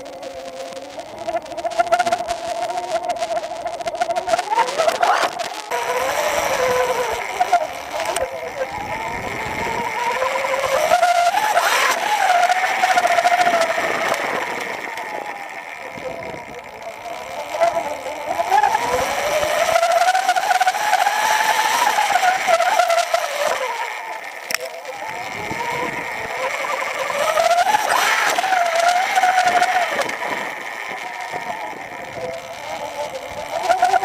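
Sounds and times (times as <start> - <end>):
electric motor whine: 0.0 - 34.0
sharp click: 24.4 - 24.8.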